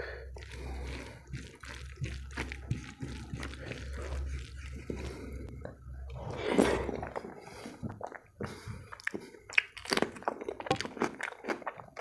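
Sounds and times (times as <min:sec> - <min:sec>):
low steady hum: 0:00.0 - 0:09.6
fingers squishing wet food: 0:00.2 - 0:05.8, 0:06.8 - 0:12.0.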